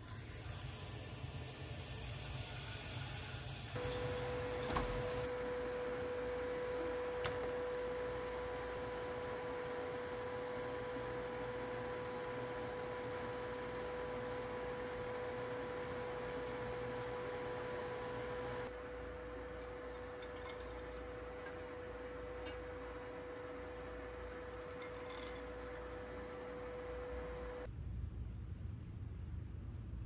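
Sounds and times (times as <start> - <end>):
water boiling in a pot: 0.0 - 4.4
electrical hum from hob: 0.0 - 30.0.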